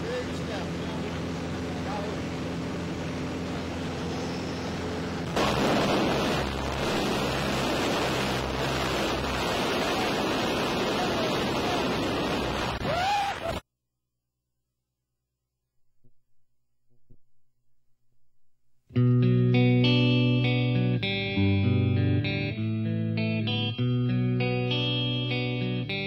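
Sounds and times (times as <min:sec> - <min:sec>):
light aircraft engine droning: 0:00.0 - 0:12.6.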